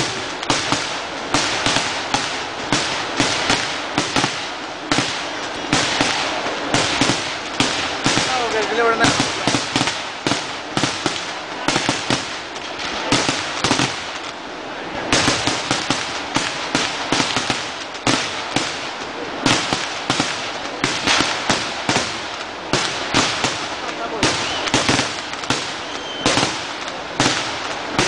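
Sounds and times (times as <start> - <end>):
firecrackers banging: 0.0 - 28.0
firework crackle: 0.0 - 28.0.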